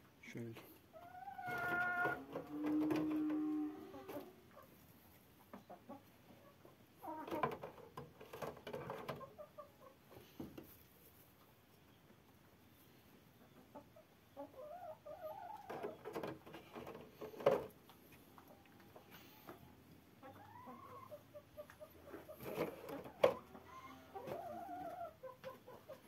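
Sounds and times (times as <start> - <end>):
hens clucking: 0.8 - 26.0
knocks and rustles: 7.2 - 9.3, 15.7 - 18.1.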